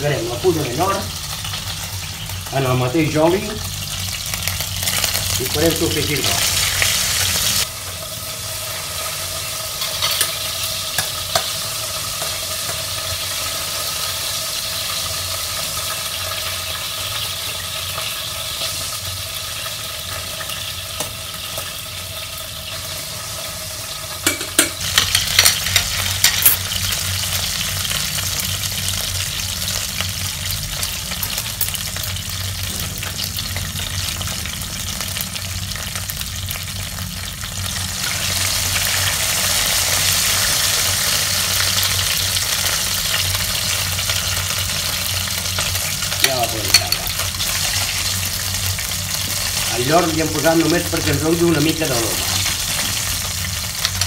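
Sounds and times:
garlic sizzling in hot oil: 0:00.0 - 0:54.0
metal tongs scraping a pan: 0:24.3 - 0:26.7.

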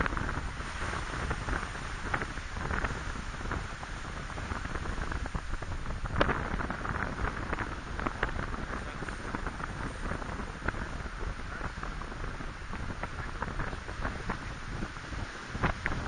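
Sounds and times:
wind noise on microphone: 0:00.0 - 0:16.0.

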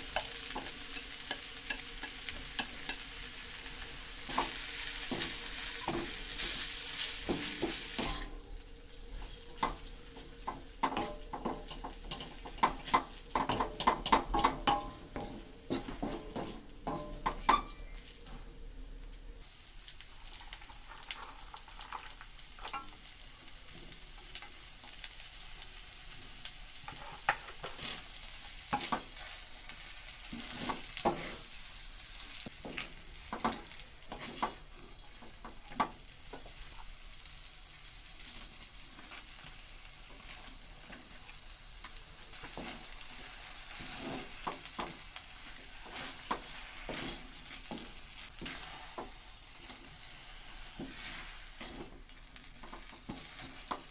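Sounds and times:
noodles sizzling in a wok: 0:00.0 - 0:53.9
spatula scraping and tapping pan: 0:00.1 - 0:03.0, 0:04.3 - 0:08.4, 0:09.6 - 0:18.4, 0:20.5 - 0:23.1, 0:23.7 - 0:25.0, 0:26.8 - 0:31.5, 0:32.4 - 0:36.6, 0:38.4 - 0:43.0, 0:43.7 - 0:50.0, 0:50.6 - 0:53.9.

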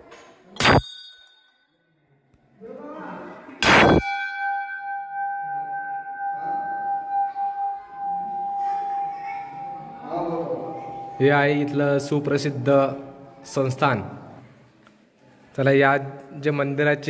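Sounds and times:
brass bell clanging: 0:03.6 - 0:10.0.

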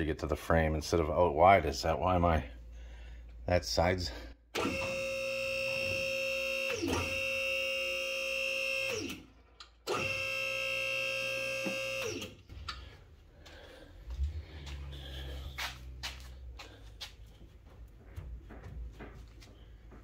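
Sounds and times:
hydraulic pump motor whining: 0:04.5 - 0:12.9.

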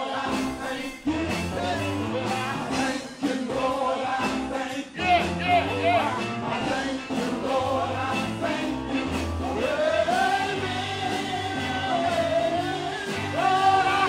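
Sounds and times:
live church band: 0:00.0 - 0:14.0
man singing into microphone: 0:09.6 - 0:14.0.

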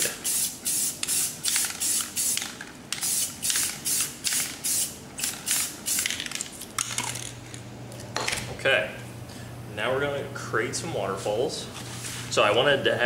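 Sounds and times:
spray paint can hissing: 0:00.0 - 0:06.2.

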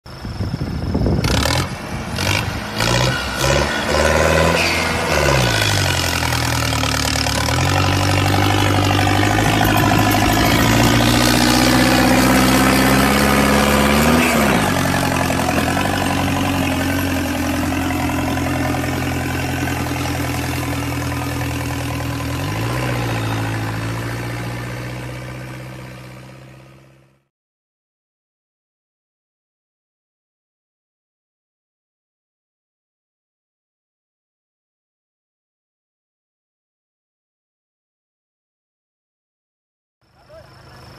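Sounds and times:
tractor diesel engine labouring: 0:00.1 - 0:27.1, 0:40.1 - 0:40.9.

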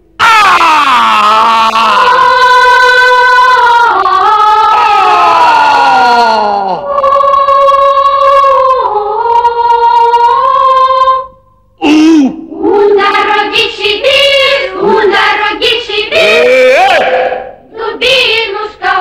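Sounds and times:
children's choir singing: 0:02.0 - 0:05.2, 0:06.8 - 0:11.3, 0:12.6 - 0:19.0.

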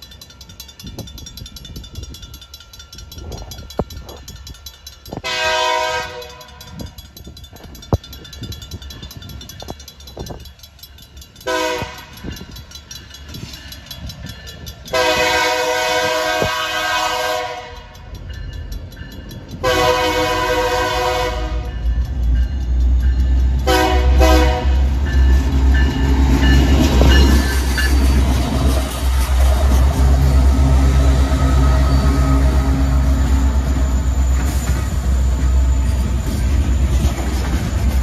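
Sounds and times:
crossing bell ringing: 0:00.0 - 0:38.0
diesel locomotive rumble passing: 0:00.0 - 0:38.0
locomotive air horn blasts: 0:05.2 - 0:06.6, 0:11.5 - 0:12.2, 0:14.9 - 0:17.9, 0:19.6 - 0:21.7, 0:23.6 - 0:24.9.

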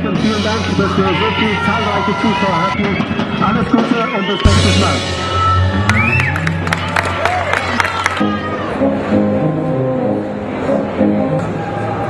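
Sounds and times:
background music with low bass: 0:00.0 - 0:07.2.

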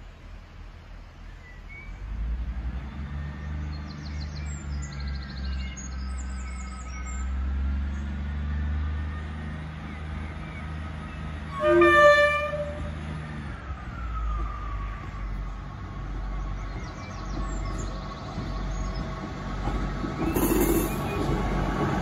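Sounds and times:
train engine rumble: 0:00.0 - 0:03.1, 0:03.7 - 0:22.0
train horn blast: 0:11.5 - 0:13.0
train wheel noise: 0:16.7 - 0:22.0.

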